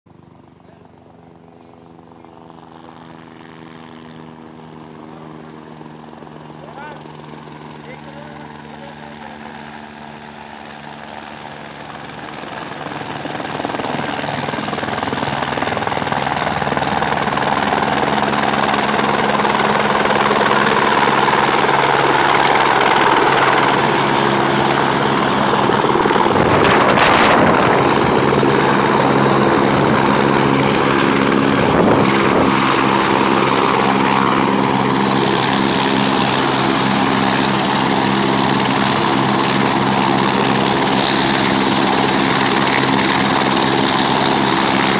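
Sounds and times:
helicopter rotor and engine: 0.1 - 44.9
high whine: 20.3 - 37.7.

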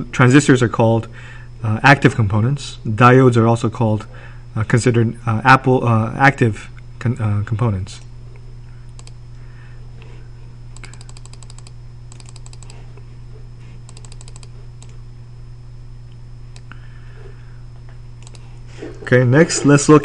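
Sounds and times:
low electrical hum: 0.0 - 20.0
computer input clicks: 9.0 - 9.2, 10.8 - 12.8, 13.9 - 15.0, 18.2 - 18.4.

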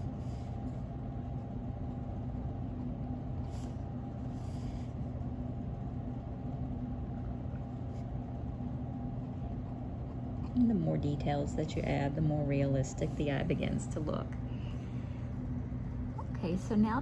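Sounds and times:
pencil scratching on paper: 0.0 - 0.9, 3.4 - 5.1
low mechanical hum: 0.0 - 17.0.

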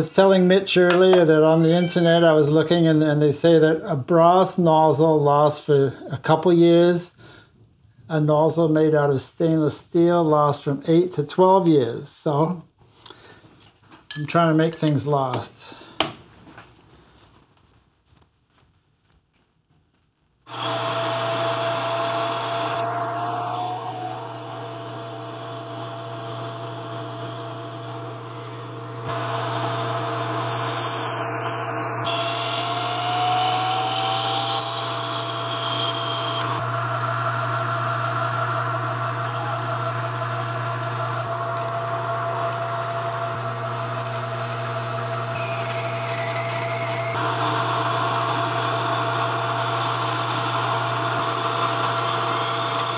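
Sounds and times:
metal lathe cutting metal: 20.5 - 52.9
steady motor hum: 20.5 - 52.9.

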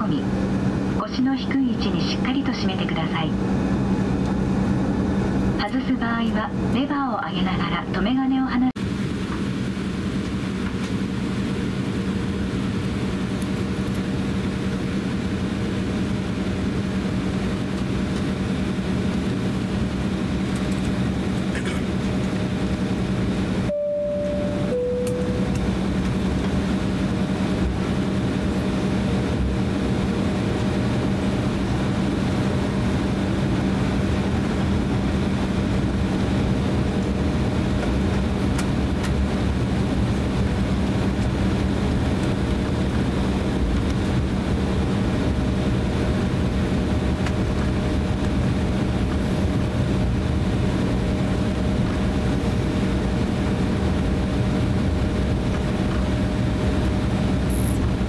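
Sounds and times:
airliner engines taxiing: 0.0 - 58.0
low cabin hum: 0.0 - 58.0.

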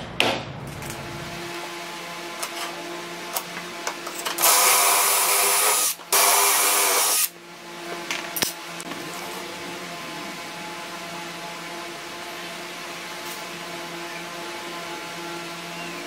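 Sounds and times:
cordless drill boring into wood: 4.4 - 7.3.

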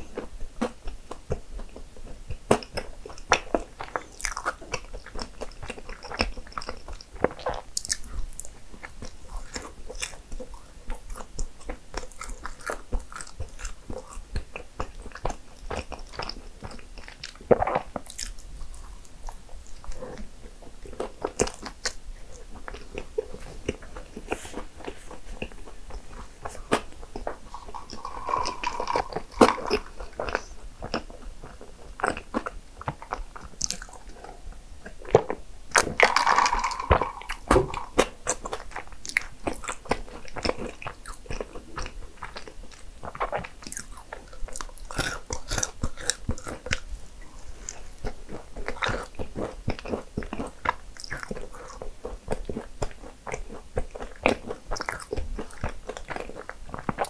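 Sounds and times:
person chewing crunchy food: 0.0 - 57.0
wet mouth sounds: 20.9 - 47.0.

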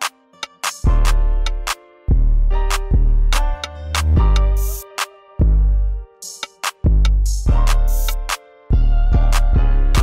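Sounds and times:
beat music with deep bass: 0.0 - 10.0.

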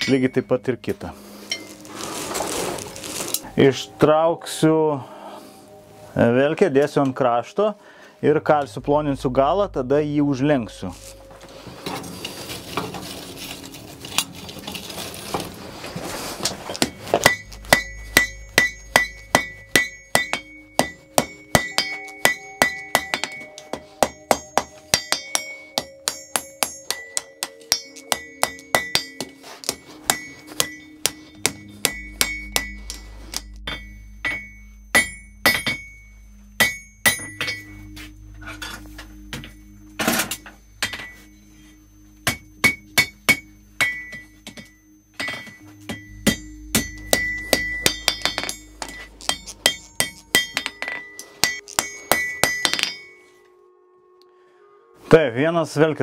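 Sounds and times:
hammer striking iron on anvil: 16.8 - 38.0, 38.6 - 41.4, 42.2 - 53.2.

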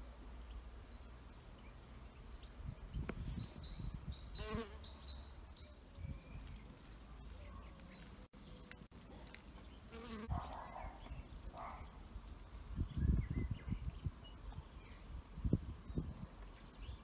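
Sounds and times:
bee buzzing in flight: 4.4 - 4.9, 9.9 - 10.3.

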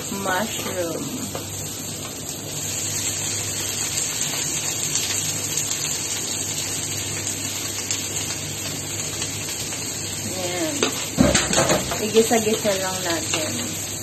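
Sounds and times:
oil sizzling in a frying pan: 0.0 - 14.0.

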